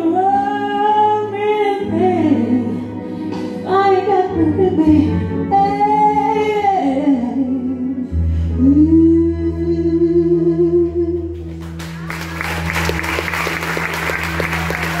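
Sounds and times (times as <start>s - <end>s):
audience applause: 11.6s - 15.0s.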